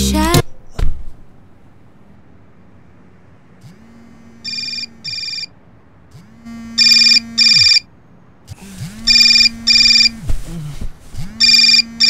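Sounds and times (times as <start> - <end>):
low buzz: 0.0 - 12.0
high electronic alarm rings: 4.4 - 5.6, 6.8 - 7.9, 9.1 - 10.2, 11.4 - 12.0.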